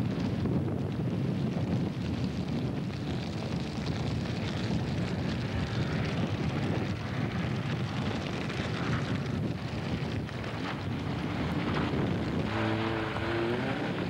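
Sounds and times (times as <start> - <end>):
rally car engine approaching: 10.4 - 14.0.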